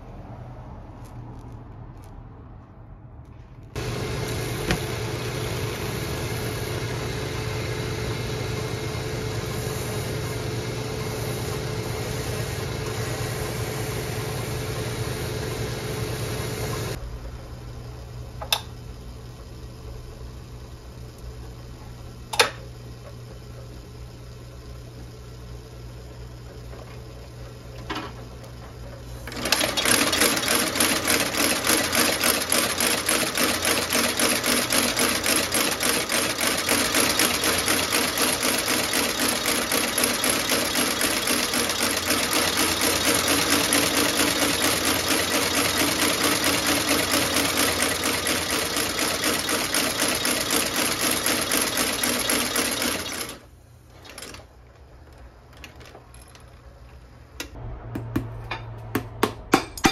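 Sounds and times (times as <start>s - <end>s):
stitching machine sewing: 29.2s - 54.5s
low hum: 57.4s - 59.9s.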